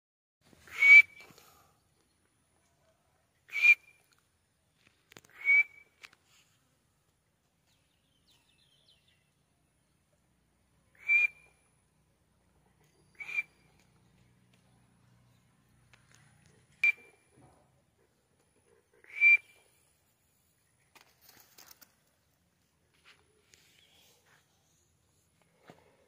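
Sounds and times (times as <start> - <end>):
francolin whistled calls: 0.7 - 1.3, 3.5 - 4.0, 5.3 - 6.0, 10.9 - 11.6, 13.0 - 13.8, 16.8 - 17.2, 19.1 - 19.6.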